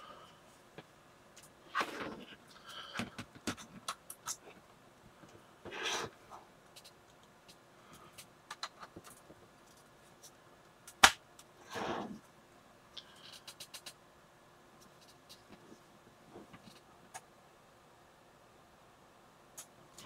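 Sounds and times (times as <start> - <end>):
sharp plastic snap: 10.9 - 11.2.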